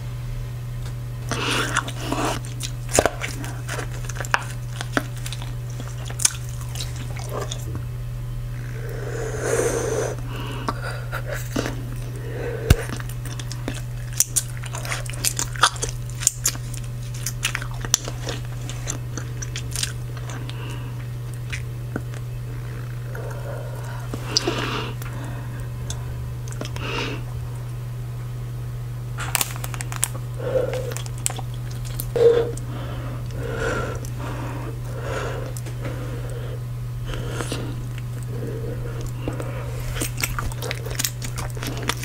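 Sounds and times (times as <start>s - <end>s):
steady low hum: 0.0s - 42.0s
gum snapping and popping: 0.8s - 7.8s, 11.5s - 22.2s, 29.2s - 32.7s, 37.1s - 42.0s
bubble gum chewing: 1.2s - 7.9s, 8.5s - 27.8s, 29.2s - 42.0s.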